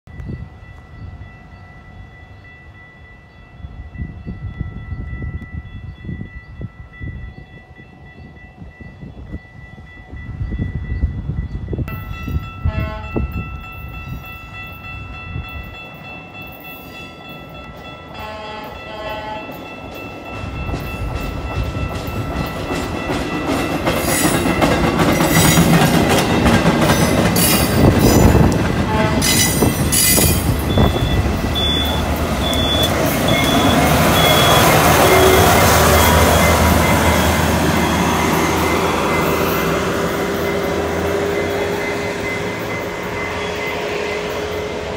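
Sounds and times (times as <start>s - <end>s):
train wheels rumbling on rails: 0.1s - 44.9s
train horn: 12.6s - 13.4s, 18.2s - 19.6s, 28.1s - 29.8s, 30.7s - 44.9s.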